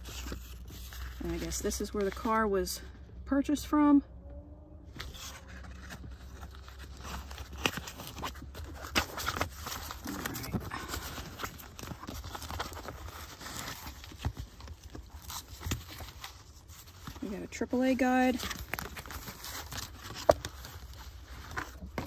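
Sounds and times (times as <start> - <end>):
paper rustling and crinkling: 0.0 - 2.4, 5.0 - 22.0.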